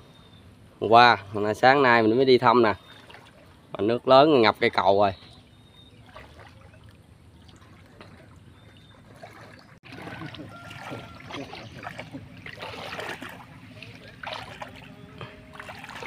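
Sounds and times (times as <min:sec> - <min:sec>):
water sloshing around wading legs: 0:02.6 - 0:03.8, 0:05.2 - 0:16.0.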